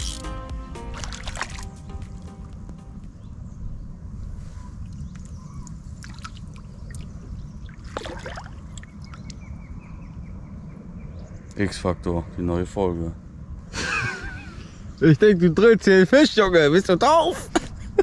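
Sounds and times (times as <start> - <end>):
water lapping against boat: 6.0 - 9.3.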